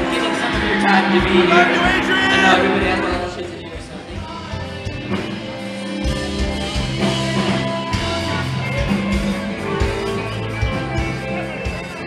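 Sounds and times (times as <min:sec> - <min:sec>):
rock music with guitar and drums: 0:00.0 - 0:12.0.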